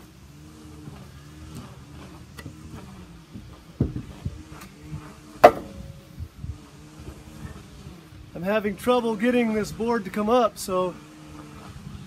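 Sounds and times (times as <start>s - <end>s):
steady low hum: 0.0s - 10.1s
knocks on wooden boards: 5.4s - 5.8s
short ring: 5.4s - 6.1s.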